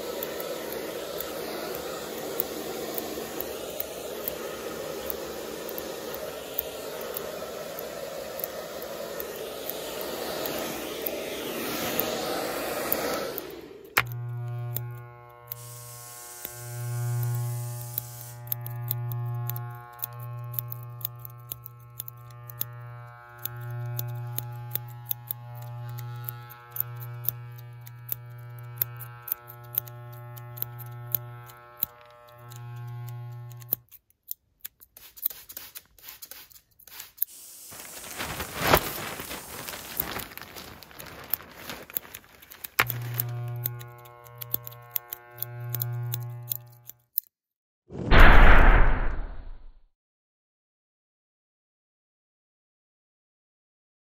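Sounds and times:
rushing hiss: 0.0s - 13.9s, 37.3s - 40.7s
electric hair clippers buzzing: 0.0s - 33.9s, 37.2s - 47.1s
scissors snipping: 17.1s - 37.3s, 41.2s - 47.3s.

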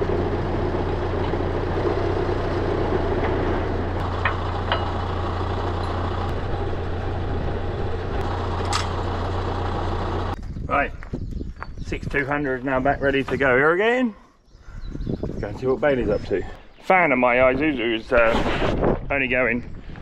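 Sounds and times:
tractor diesel engine idling: 0.0s - 10.4s.

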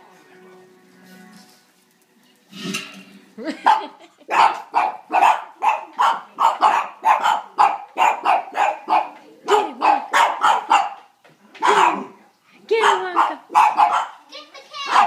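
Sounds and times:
dogs barking rapidly: 3.6s - 15.0s.

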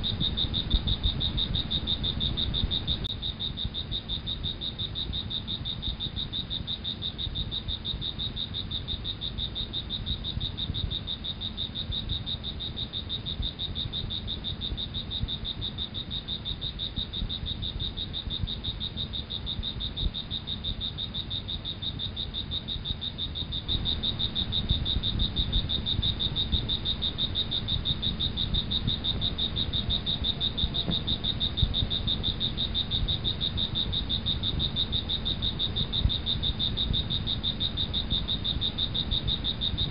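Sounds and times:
crickets trilling: 0.0s - 39.9s
low rumble: 23.7s - 39.9s.

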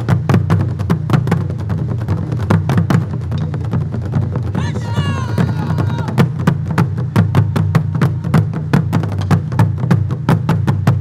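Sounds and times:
drum ensemble fast rhythm: 0.0s - 11.0s.

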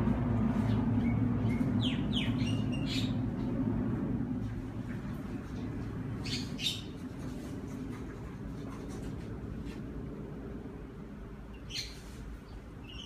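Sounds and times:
low steady background rumble: 0.0s - 13.0s
bird chirping: 0.6s - 3.6s, 6.2s - 7.0s, 11.5s - 13.0s.

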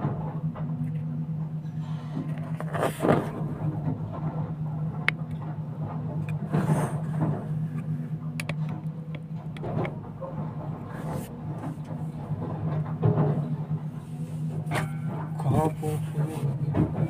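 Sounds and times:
excavator diesel engine running: 0.0s - 17.0s
bucket scraping rock: 2.4s - 3.6s.

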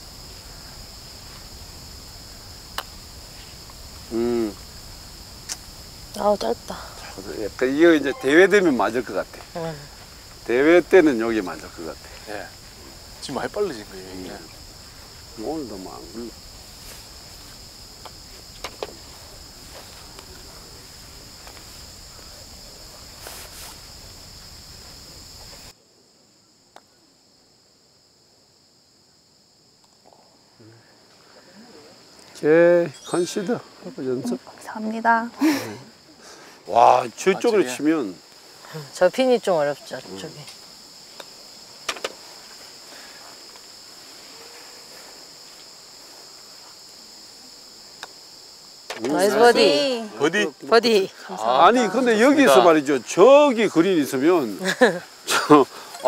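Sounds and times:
insect chorus: 0.0s - 56.0s
outdoor background noise: 0.0s - 56.0s.

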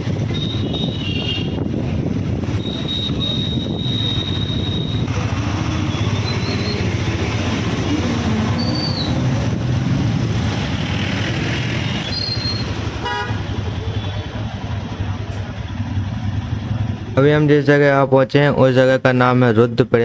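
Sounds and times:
motorcycle engine: 0.0s - 17.6s
road noise: 0.0s - 20.0s
vehicle horn toots: 0.3s - 1.7s, 2.6s - 5.1s, 12.5s - 14.3s.

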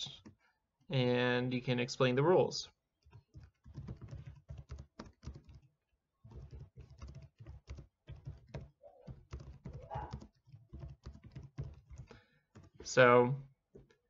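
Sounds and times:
computer keyboard typing: 3.0s - 13.0s.

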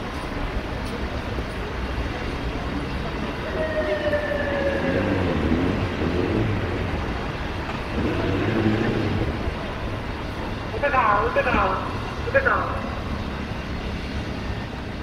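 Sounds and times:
street traffic: 0.0s - 15.0s
motorcycle engine revving: 4.5s - 9.7s.

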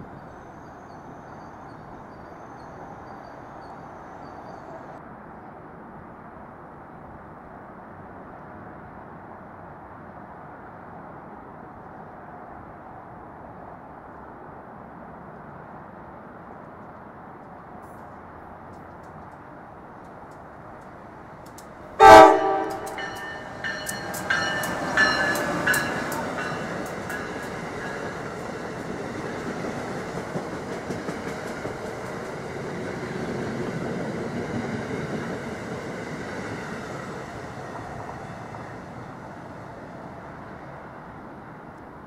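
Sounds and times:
train passing rumble: 13.6s - 42.0s
train horn blast: 22.0s - 26.0s
sharp clacks: 22.6s - 28.2s.

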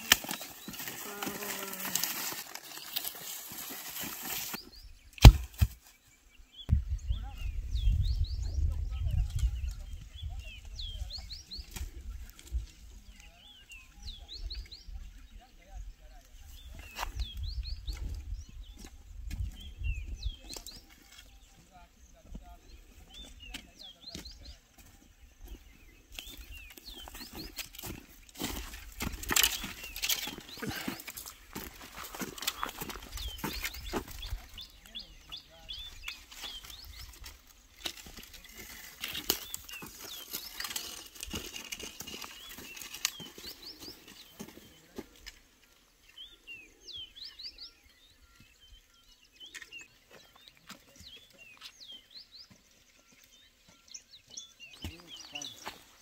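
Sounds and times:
dry firewood sticks clattering: 0.0s - 6.0s, 26.2s - 45.7s
footsteps on dirt path: 0.0s - 6.0s, 16.3s - 56.0s
branches dragging along dirt: 0.0s - 6.1s, 22.6s - 48.1s, 49.3s - 56.0s
birds chirping: 0.0s - 56.0s.

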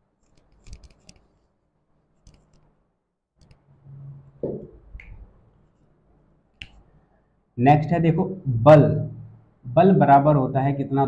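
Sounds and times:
faint clicks and taps: 0.2s - 1.3s, 2.2s - 2.8s, 3.4s - 3.7s.

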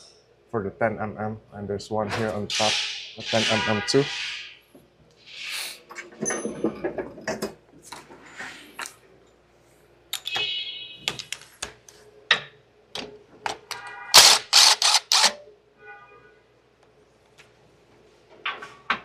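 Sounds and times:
hand ratchet clicking: 14.2s - 15.4s.

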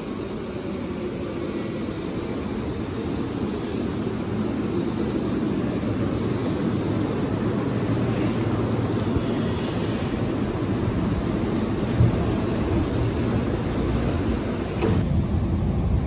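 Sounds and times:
train motors and wheels on rails: 0.0s - 16.0s.

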